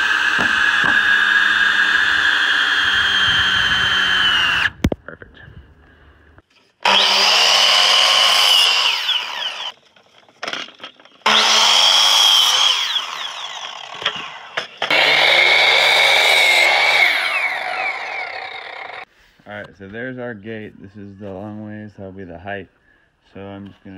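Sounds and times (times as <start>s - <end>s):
miter saw cutting wood: 0.0s - 4.8s, 6.8s - 9.8s, 10.4s - 19.1s.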